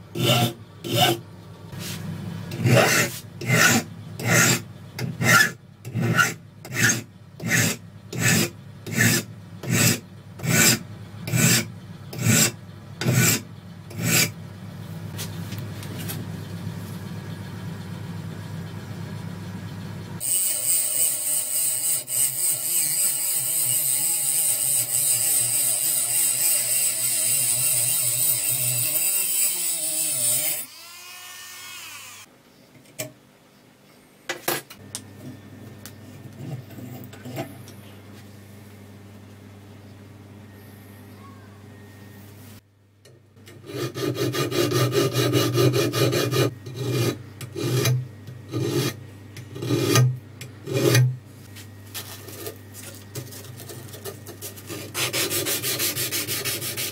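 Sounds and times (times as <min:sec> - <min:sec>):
low steady hum: 0:00.0 - 0:20.2, 0:32.3 - 0:56.9
file rasping on steel blade: 0:00.1 - 0:01.2, 0:01.8 - 0:14.4, 0:20.2 - 0:30.7, 0:43.5 - 0:51.1, 0:53.9 - 0:56.9.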